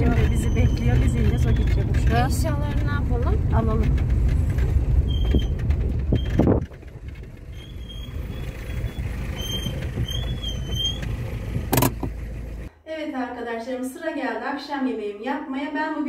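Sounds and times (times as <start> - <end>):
short high squeaks: 0.0 - 2.0, 5.0 - 6.6, 7.4 - 11.8
road and engine rumble: 0.0 - 12.7
sharp knocks: 11.6 - 12.2.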